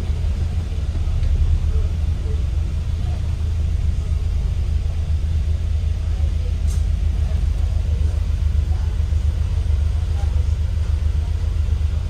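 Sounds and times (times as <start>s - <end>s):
bus engine rumble: 0.0s - 12.0s.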